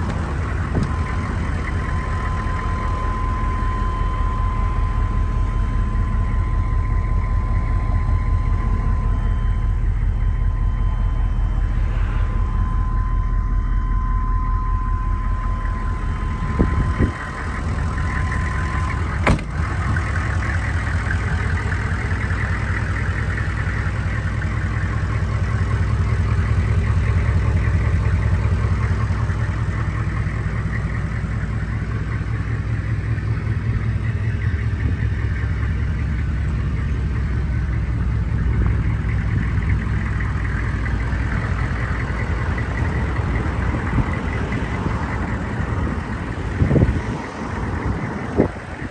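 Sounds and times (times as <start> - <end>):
steady high tone: 0.0 - 23.4
diesel engine idling: 0.0 - 48.9
thump: 19.2 - 19.6.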